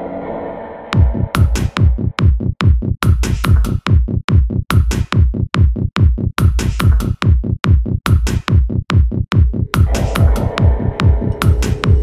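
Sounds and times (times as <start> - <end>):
drum machine kick: 1.0 - 12.0.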